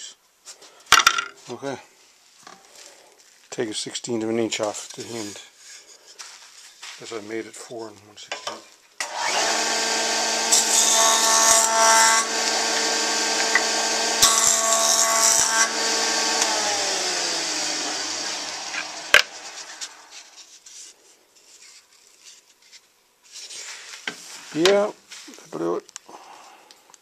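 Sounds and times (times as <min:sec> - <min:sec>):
jointer running: 0:09.0 - 0:20.1
board cutting hiss: 0:09.0 - 0:20.4
motor winding down: 0:09.1 - 0:20.1.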